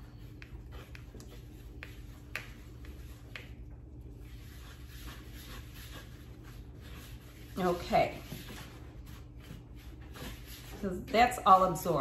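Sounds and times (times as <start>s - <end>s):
low steady hum: 0.0s - 12.0s
spatula scraping a bowl: 4.2s - 11.8s.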